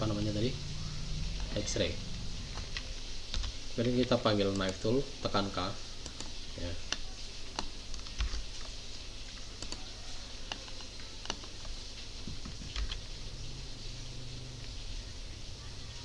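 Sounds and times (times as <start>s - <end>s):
low background hum: 0.0s - 16.0s
keyboard and mouse clicks: 2.5s - 5.0s, 6.0s - 9.9s, 10.5s - 13.0s.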